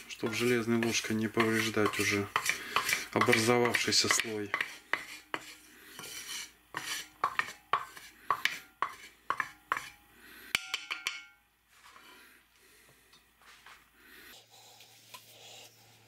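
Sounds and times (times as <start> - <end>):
wooden spatula scraping iron pan: 0.0 - 10.0
wood tapping on pan rim: 10.6 - 11.4.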